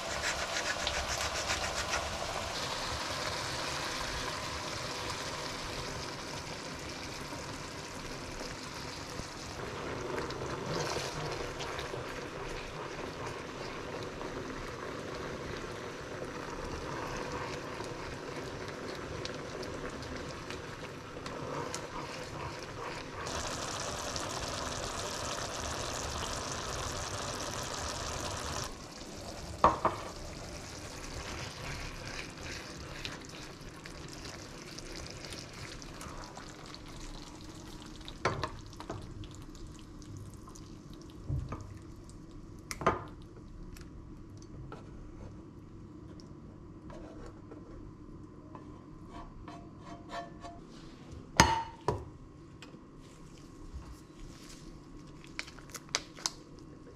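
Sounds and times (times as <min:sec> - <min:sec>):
sauce sizzling in a frying pan: 0:00.0 - 0:41.2.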